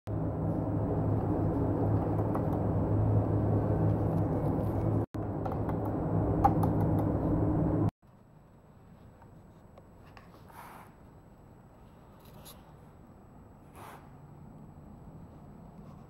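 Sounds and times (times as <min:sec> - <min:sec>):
low machine hum: 0:00.1 - 0:07.9.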